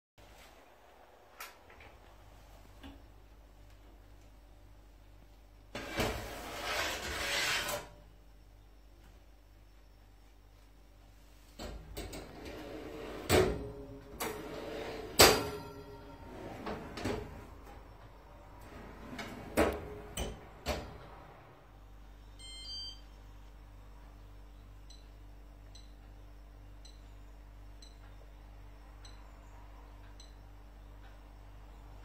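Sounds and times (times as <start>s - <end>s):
metal oven shelf scraping and clattering: 5.8s - 8.0s, 12.1s - 17.6s, 18.6s - 21.0s.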